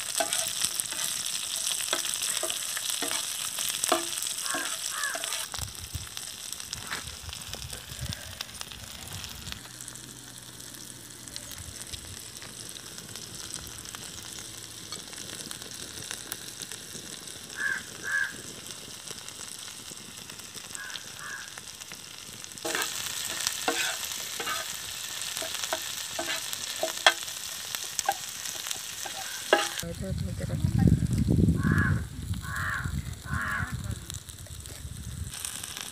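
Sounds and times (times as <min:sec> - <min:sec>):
food sizzling in a pan: 0:00.0 - 0:35.9
metal spatula scraping pan: 0:00.1 - 0:05.5, 0:22.7 - 0:27.3, 0:28.0 - 0:29.8.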